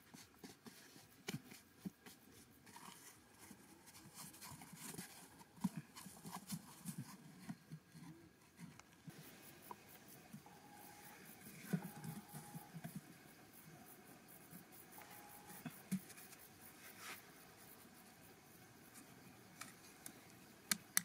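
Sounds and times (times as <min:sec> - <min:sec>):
hands brushing dry soil: 0:00.0 - 0:07.6, 0:15.0 - 0:18.0.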